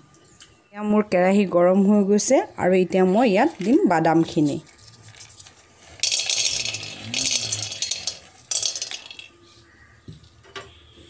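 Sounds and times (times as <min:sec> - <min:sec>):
peanuts rattling in a metal pan: 0:03.4 - 0:09.3.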